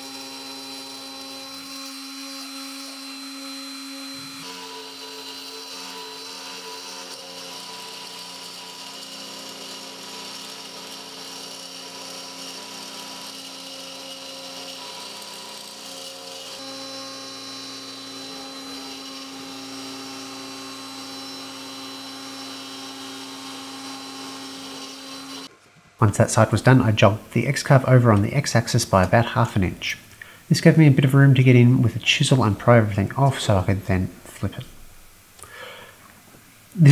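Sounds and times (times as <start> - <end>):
router spindle cutting wood: 0.0 - 25.5
stepper motors whining: 0.0 - 25.5.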